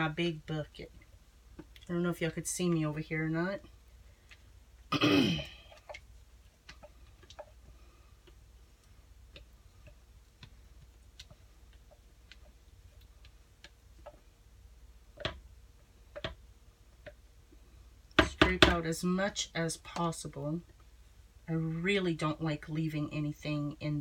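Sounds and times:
spatula tapping plastic container: 0:06.6 - 0:14.2, 0:15.1 - 0:15.5, 0:16.1 - 0:16.4, 0:18.1 - 0:18.8.

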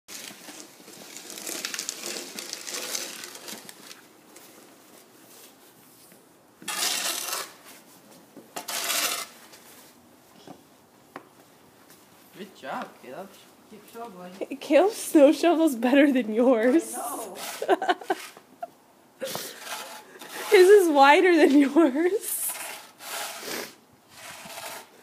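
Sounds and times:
shovel scraping snow on pavement: 0:06.6 - 0:08.0, 0:08.6 - 0:10.0, 0:14.9 - 0:18.4, 0:19.2 - 0:25.0.

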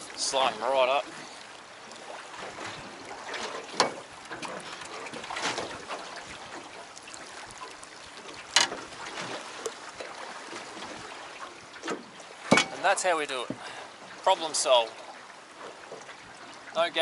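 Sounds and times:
water sloshing against boat: 0:00.0 - 0:17.0
sharp knocks: 0:11.9 - 0:12.8.

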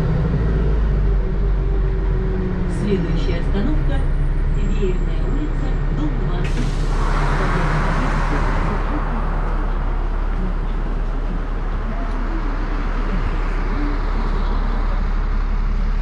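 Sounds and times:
bus engine idling: 0:00.0 - 0:16.0
light street noise: 0:00.0 - 0:16.0.

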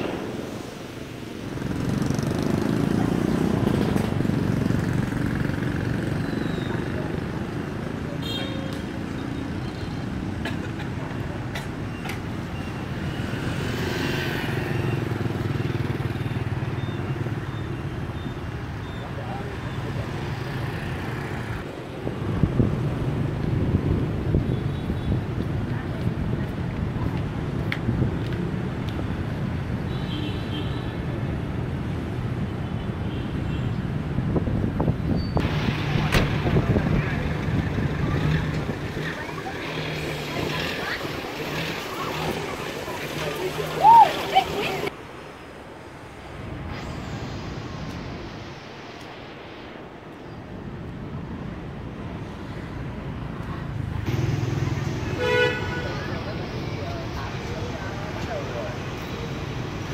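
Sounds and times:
motorbike traffic rumble: 0:00.0 - 0:59.9
wind on microphone: 0:34.0 - 0:39.1.

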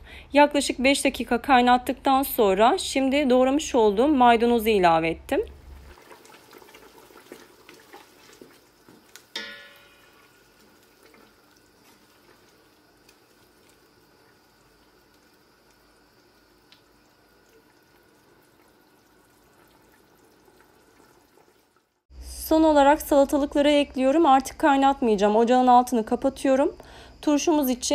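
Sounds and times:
faint steady hiss: 0:05.4 - 0:27.9
wooden spoon stirring in a pot: 0:05.8 - 0:15.0
spoon knocking against pot: 0:09.3 - 0:10.3.

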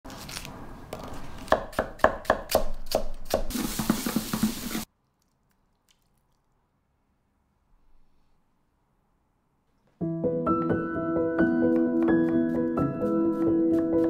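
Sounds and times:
knife chopping on wooden board: 0:01.5 - 0:03.5, 0:11.7 - 0:14.0.

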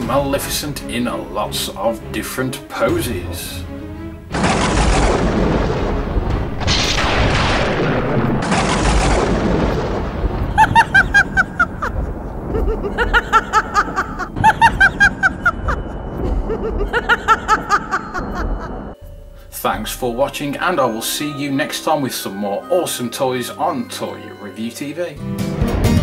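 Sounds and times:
booming whooshes: 0:04.3 - 0:19.0.

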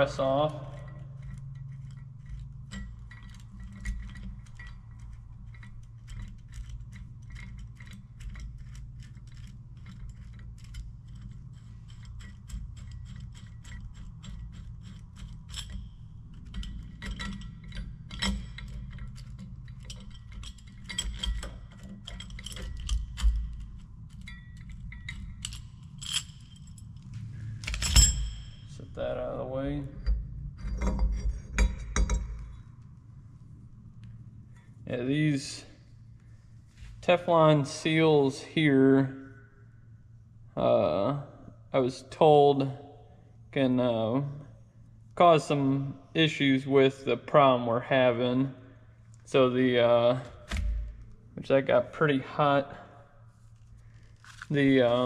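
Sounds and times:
metal clicks and clinks: 0:00.0 - 0:28.8
steady low hum: 0:00.0 - 0:55.0.

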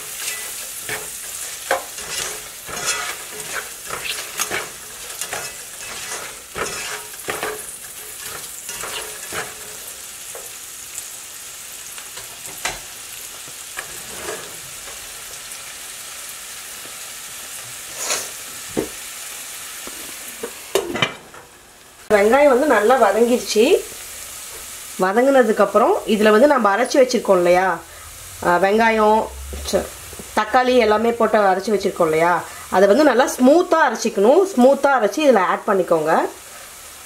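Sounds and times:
spatula scraping pan: 0:00.0 - 0:10.6, 0:13.8 - 0:15.1
onions sizzling in butter: 0:00.0 - 0:37.0.

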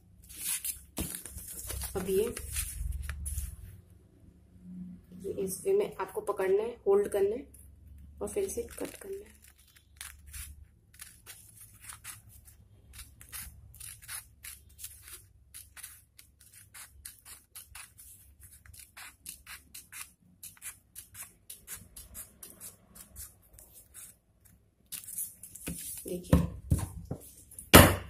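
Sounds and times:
scissors snipping newspaper: 0:00.3 - 0:03.6, 0:08.3 - 0:26.2.

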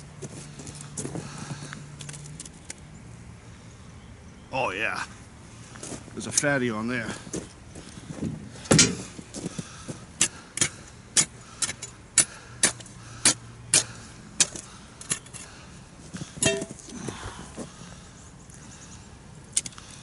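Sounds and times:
ice chisel striking ice: 0:10.2 - 0:15.4.

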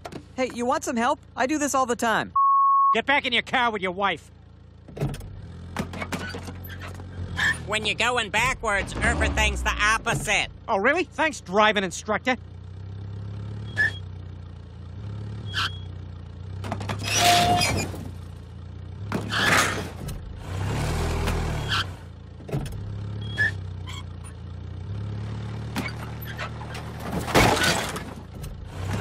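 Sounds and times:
car engine revving: 0:06.9 - 0:10.7, 0:18.1 - 0:22.1
loud crashes and scrapes: 0:16.6 - 0:18.3, 0:19.1 - 0:22.0, 0:25.7 - 0:29.0.

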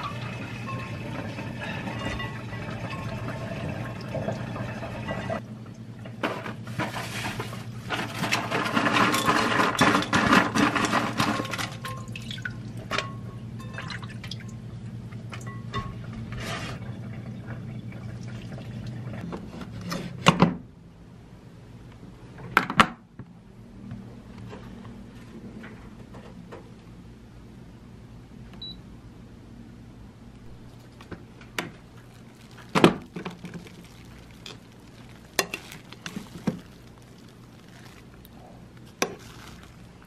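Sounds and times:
tap water running and splashing: 0:02.2 - 0:05.4, 0:31.9 - 0:38.3
handling food in metal pot: 0:30.7 - 0:40.0.

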